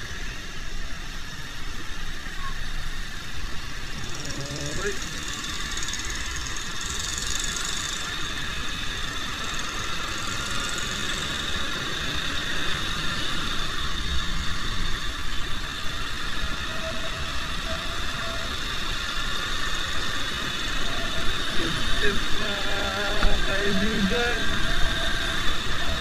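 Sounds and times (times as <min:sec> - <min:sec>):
motorcycle engine running: 0:03.7 - 0:15.8.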